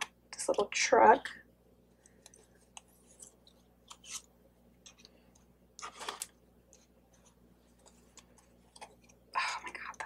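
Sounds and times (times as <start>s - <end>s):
paper rustle: 5.8s - 6.4s.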